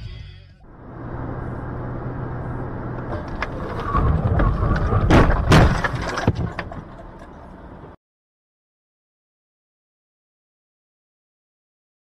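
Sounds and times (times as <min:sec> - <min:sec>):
road noise inside car: 0:00.0 - 0:08.0
rattles: 0:03.0 - 0:08.0
car crash impacts with crunching: 0:03.1 - 0:07.6.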